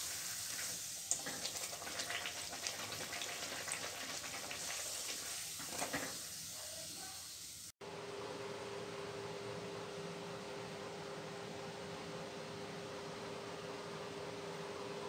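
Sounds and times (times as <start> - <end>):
deep-frying sizzle with crackles: 0.0 - 7.8.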